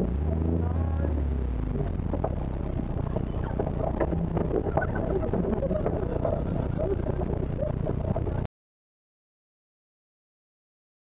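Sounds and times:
vehicle engine running: 0:00.0 - 0:08.5
body and suspension rattles: 0:01.8 - 0:08.5.

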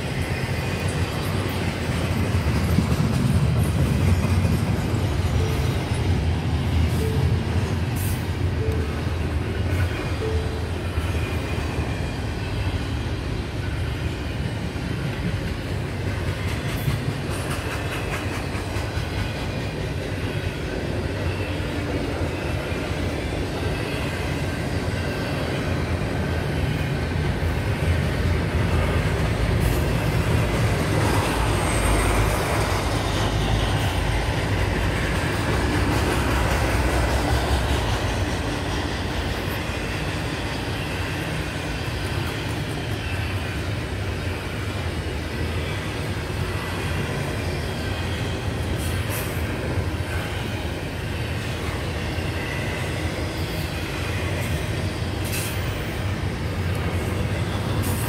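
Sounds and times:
wheels clacking over rail joints: 0:00.0 - 0:11.3, 0:15.0 - 0:43.9
freight train wheels rumbling: 0:00.0 - 0:58.0.

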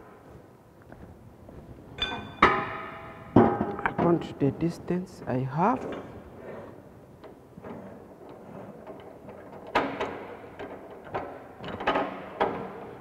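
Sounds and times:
metal clanks of pipe and vise: 0:02.0 - 0:04.2, 0:07.2 - 0:13.0.

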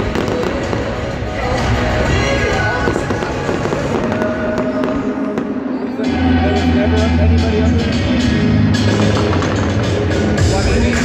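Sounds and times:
fireworks crackling and banging: 0:00.0 - 0:06.0, 0:08.8 - 0:10.2
music playing: 0:00.0 - 0:11.0.

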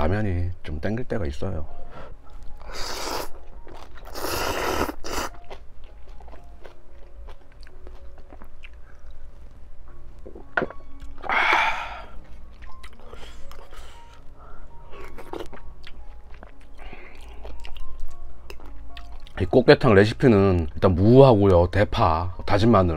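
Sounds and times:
chewing and wet mouth sounds: 0:02.3 - 0:09.5, 0:10.2 - 0:14.2, 0:14.9 - 0:19.4.

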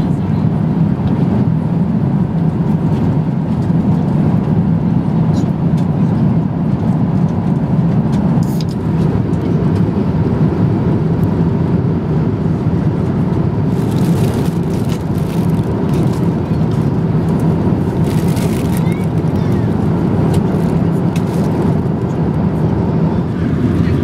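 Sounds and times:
airplane cabin drone in flight: 0:00.0 - 0:24.0
plastic bag crinkling: 0:13.7 - 0:21.8.

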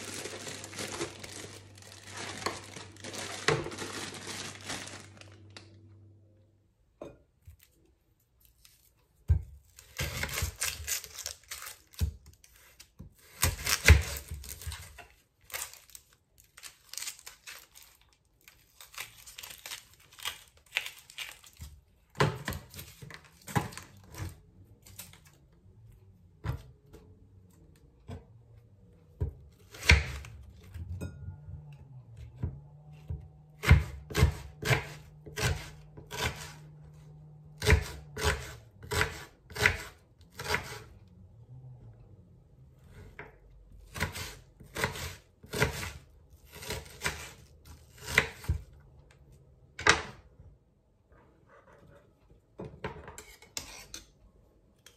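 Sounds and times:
onion skin crackling and tearing: 0:00.0 - 0:05.8, 0:09.8 - 0:12.8, 0:13.4 - 0:24.1.

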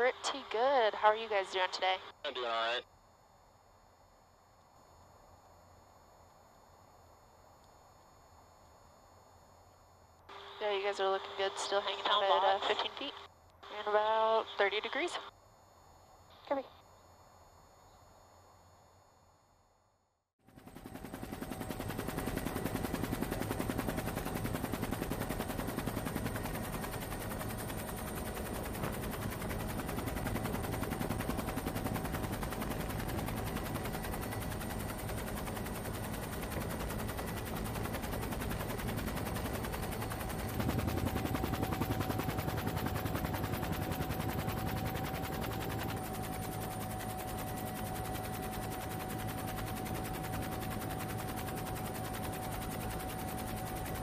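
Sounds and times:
helicopter rotor thudding: 0:20.6 - 0:47.0.

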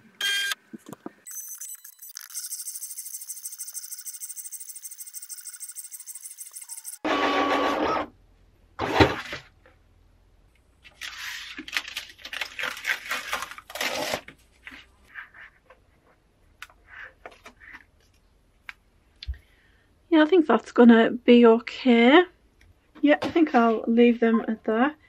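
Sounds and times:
cutting machine whirring: 0:01.4 - 0:08.0
paper rustling: 0:10.8 - 0:15.6.

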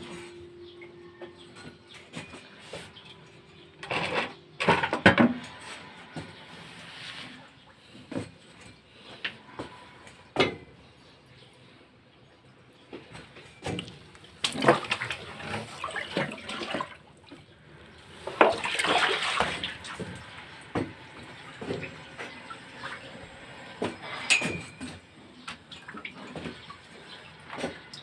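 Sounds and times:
water splashing: 0:13.6 - 0:17.4, 0:18.1 - 0:24.0.

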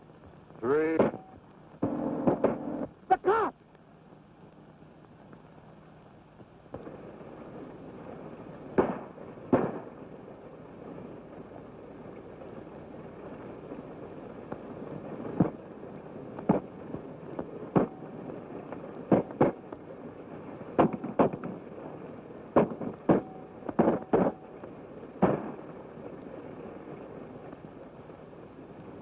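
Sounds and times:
steady hiss: 0:00.0 - 0:29.0
gunshots: 0:00.9 - 0:02.8, 0:08.8 - 0:10.0, 0:17.7 - 0:18.0, 0:20.8 - 0:21.6, 0:22.5 - 0:24.4, 0:25.2 - 0:25.7.

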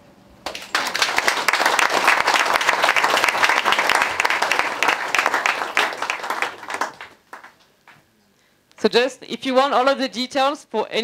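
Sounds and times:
audience applauding: 0:00.5 - 0:08.0.

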